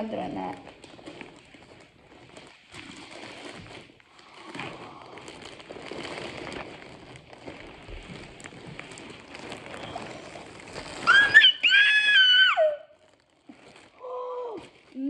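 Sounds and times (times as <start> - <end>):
plastic bag crinkling and tearing: 0.0 - 15.0
woman squealing: 11.0 - 13.0.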